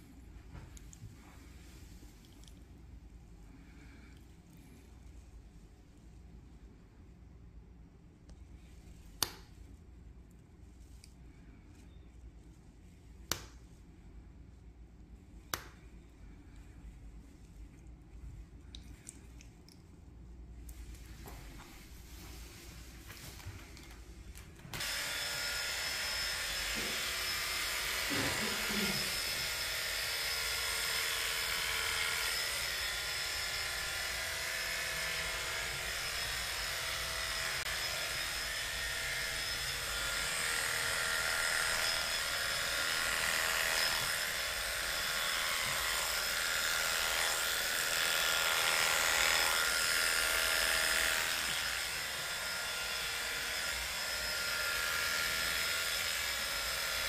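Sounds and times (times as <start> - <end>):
electric hair clippers humming: 24.8 - 57.0.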